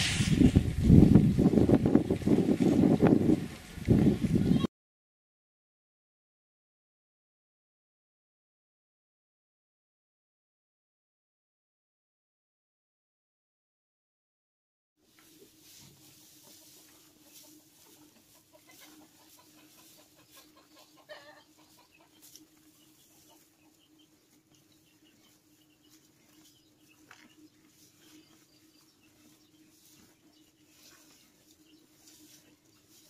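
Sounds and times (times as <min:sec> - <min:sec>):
small ticks and rustles: 0:15.0 - 0:33.0
hen clucking: 0:15.2 - 0:33.0.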